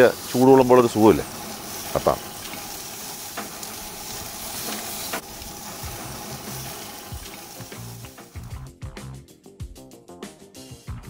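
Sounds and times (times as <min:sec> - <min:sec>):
chicken sizzling on grill: 0:00.0 - 0:08.6.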